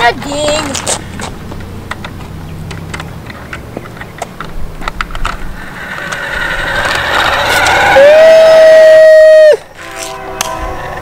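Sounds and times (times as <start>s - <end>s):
toy car motor hum: 5.4s - 8.2s.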